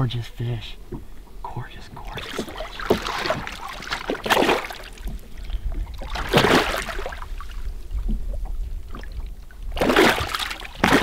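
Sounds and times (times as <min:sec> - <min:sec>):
water splashing in a net: 0:02.1 - 0:05.2, 0:05.9 - 0:07.6, 0:09.7 - 0:11.0.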